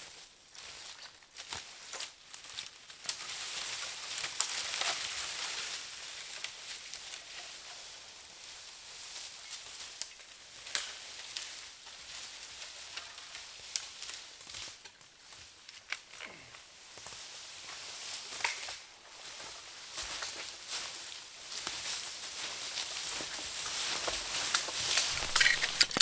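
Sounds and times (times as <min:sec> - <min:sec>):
footsteps crunching dry leaves: 0:17.2 - 0:26.0
branch dragged through leaves: 0:19.2 - 0:26.0
twig snaps: 0:25.0 - 0:26.0.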